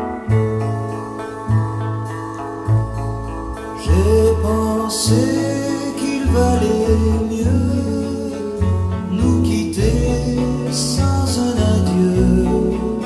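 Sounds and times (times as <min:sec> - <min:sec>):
acoustic guitar: 0:00.0 - 0:13.0
bass: 0:00.0 - 0:13.0
man singing: 0:03.8 - 0:13.0.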